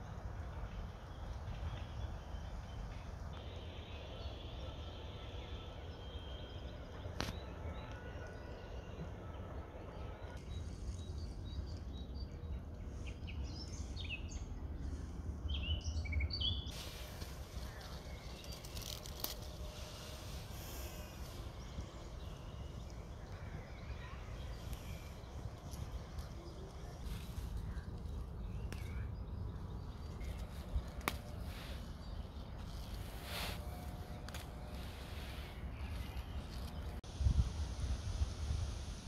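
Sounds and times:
bright hiss: 37.1 - 39.0.

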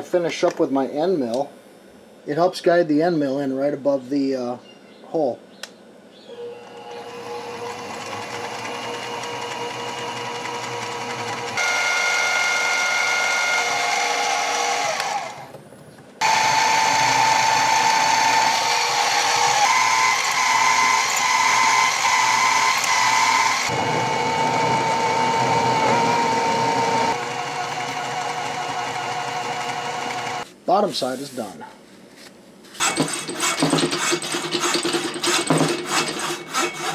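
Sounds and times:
milling machine cutting metal: 6.6 - 15.4, 16.2 - 30.4, 32.8 - 36.9.

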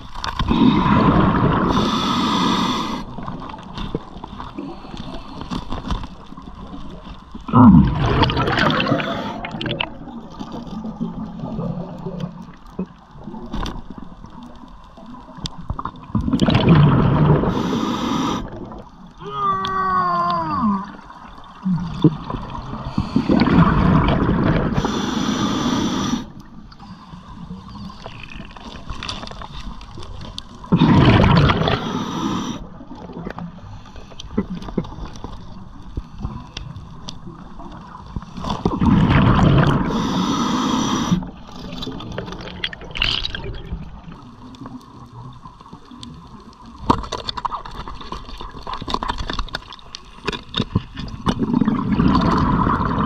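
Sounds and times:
scuba exhale bubbling: 0.0 - 3.7, 7.5 - 13.5, 15.8 - 44.8, 51.0 - 53.0
high hiss of breath: 1.7 - 3.0, 17.5 - 18.5, 24.8 - 26.3, 31.7 - 32.6, 39.9 - 41.3.

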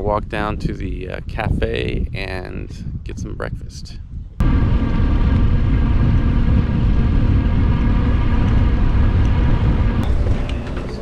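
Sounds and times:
motor engine rumbling: 4.4 - 11.0.

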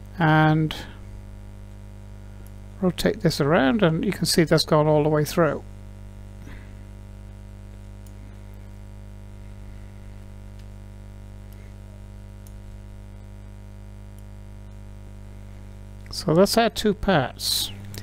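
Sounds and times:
electrical mains hum: 0.0 - 18.0
faint clicks: 12.4 - 12.6, 14.1 - 14.8.

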